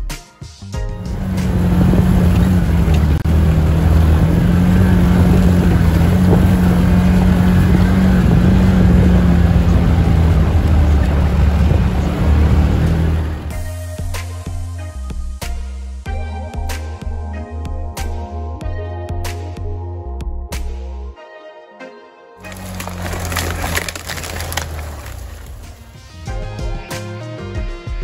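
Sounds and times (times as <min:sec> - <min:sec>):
vehicle engine and drivetrain drone: 0:00.8 - 0:13.8, 0:22.4 - 0:26.3.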